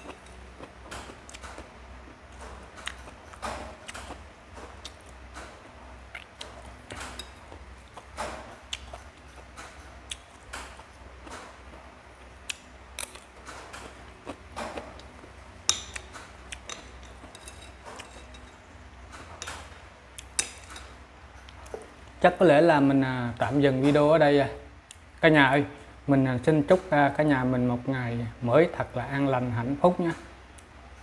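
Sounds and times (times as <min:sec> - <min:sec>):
chewing and mouth sounds: 0:06.0 - 0:13.1, 0:13.7 - 0:16.9
spoon scraping ceramic bowl: 0:16.7 - 0:18.6.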